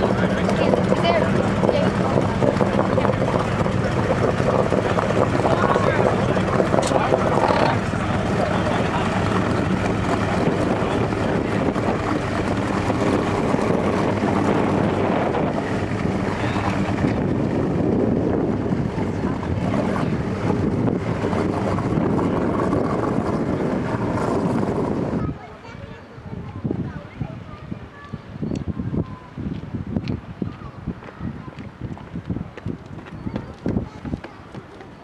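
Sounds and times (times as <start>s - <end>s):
outboard motors running: 0.0s - 26.0s
wind buffeting microphone: 0.0s - 35.0s.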